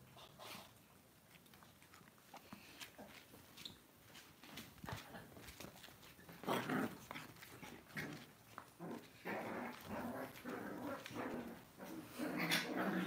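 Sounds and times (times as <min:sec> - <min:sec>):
puppies growling and whimpering: 0:06.4 - 0:13.0.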